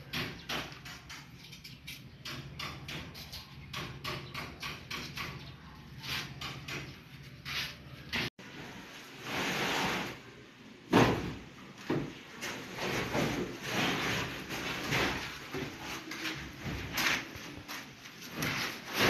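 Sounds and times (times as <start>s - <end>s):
timber knocks and scrapes: 10.9s - 19.0s.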